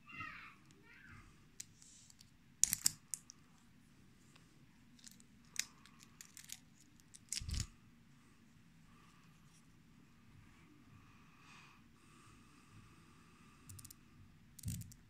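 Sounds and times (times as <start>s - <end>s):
small hard objects clicking: 1.6s - 3.4s, 5.0s - 7.7s, 13.7s - 14.0s, 14.6s - 15.0s.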